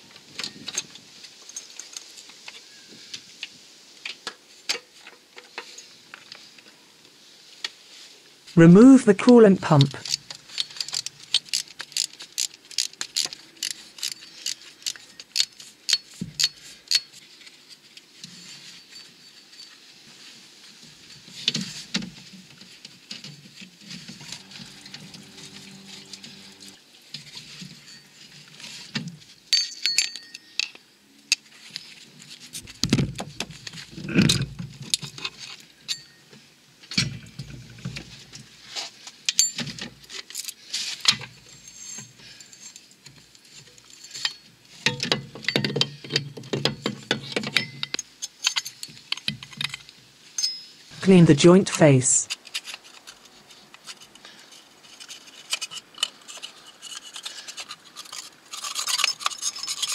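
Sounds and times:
metallic clinks and scrapes: 0:00.4 - 0:02.2, 0:10.0 - 0:21.9, 0:23.2 - 0:30.8, 0:38.3 - 0:46.4, 0:47.2 - 0:51.0, 0:52.3 - 0:59.9.

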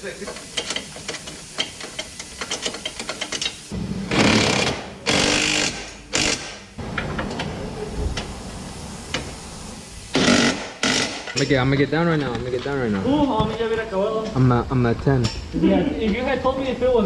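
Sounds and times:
impact wrench hammering: 0:00.6 - 0:07.1, 0:10.1 - 0:11.6.

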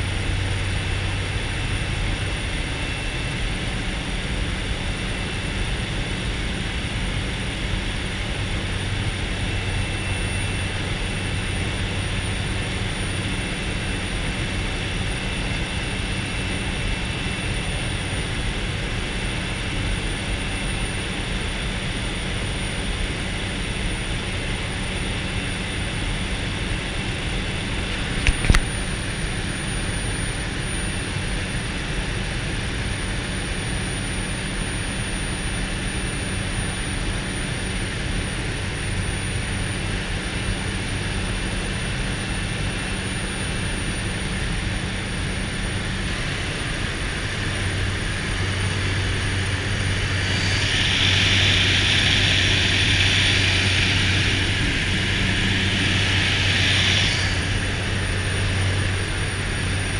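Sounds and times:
propeller aircraft engine drone: 0:00.0 - 0:59.9
sharp click: 0:28.2 - 0:28.7.

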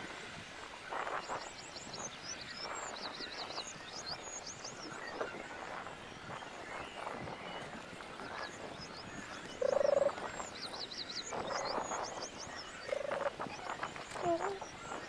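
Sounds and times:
small birds chirping: 0:00.6 - 0:15.0
frog croaking: 0:09.6 - 0:10.2, 0:12.9 - 0:13.5, 0:14.2 - 0:14.7.

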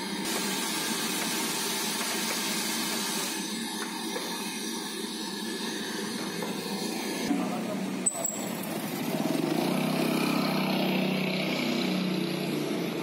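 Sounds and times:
hot oil sizzling: 0:00.0 - 0:07.3.

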